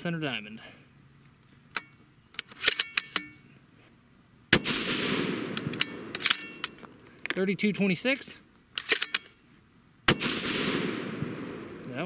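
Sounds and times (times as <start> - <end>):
rifle shot with echo: 4.5 - 6.8, 10.1 - 12.0.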